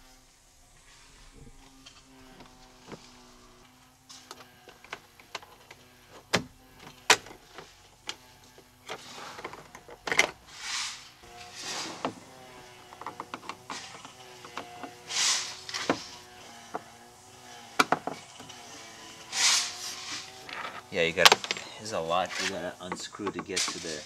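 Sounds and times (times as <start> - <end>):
plastic scraping plastic: 4.1 - 17.0, 17.7 - 24.0.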